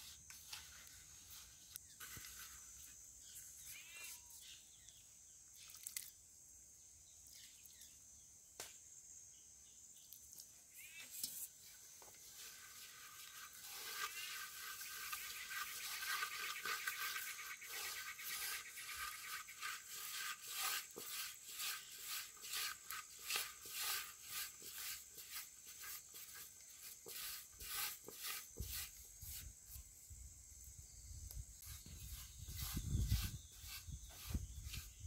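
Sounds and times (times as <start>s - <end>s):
hand rubbing flour in metal basin: 0.0s - 3.9s, 11.2s - 29.8s, 31.7s - 35.0s.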